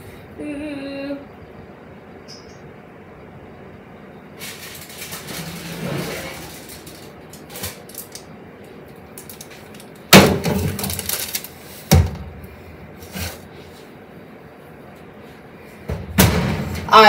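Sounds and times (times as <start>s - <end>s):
kitchenware rattling: 4.5s - 8.2s.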